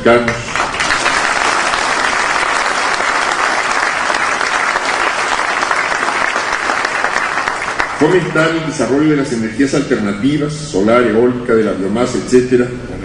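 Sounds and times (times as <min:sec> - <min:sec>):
audience applauding: 0:00.3 - 0:08.4.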